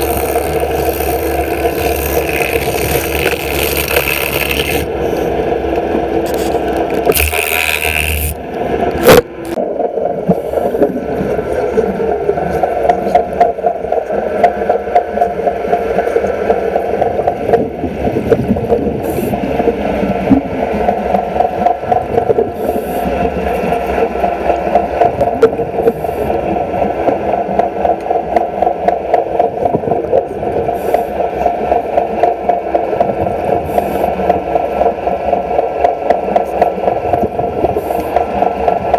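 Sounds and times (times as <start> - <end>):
welding arc crackling buzz: 0.0 - 4.9, 6.2 - 9.6.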